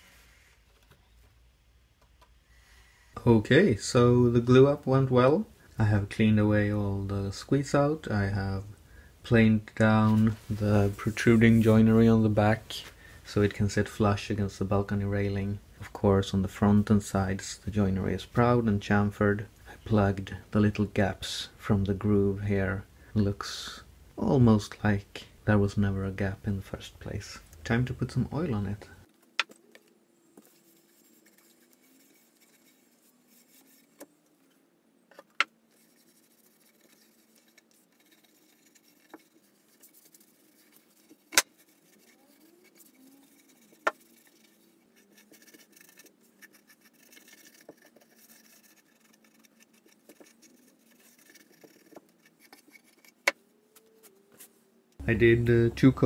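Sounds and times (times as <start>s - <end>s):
cloth rubbing on wood: 30.4s - 34.1s, 35.7s - 53.2s.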